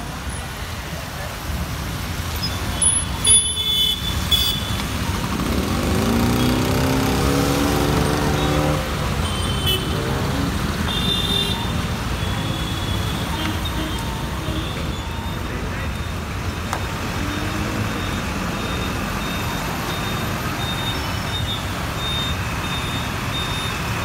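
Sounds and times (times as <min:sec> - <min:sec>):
rain and traffic on wet road: 0:00.0 - 0:24.0
vehicle engine revving: 0:05.2 - 0:10.9.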